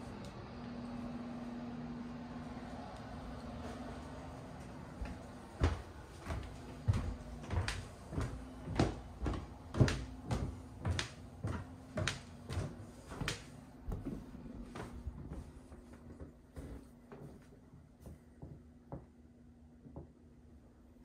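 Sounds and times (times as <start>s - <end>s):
low hum: 0.0s - 16.1s
footsteps on wooden stairs: 4.5s - 19.2s.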